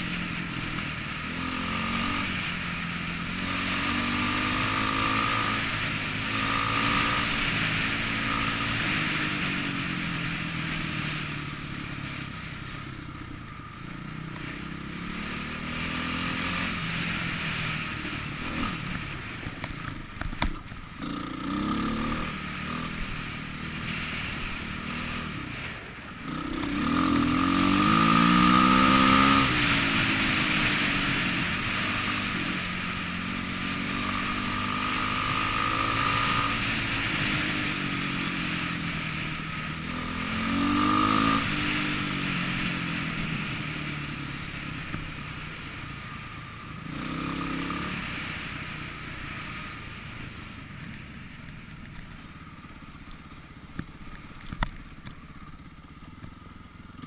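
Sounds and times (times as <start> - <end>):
dirt bike engine revving: 0.0 - 12.8, 13.8 - 19.4, 21.0 - 45.6, 46.8 - 48.5.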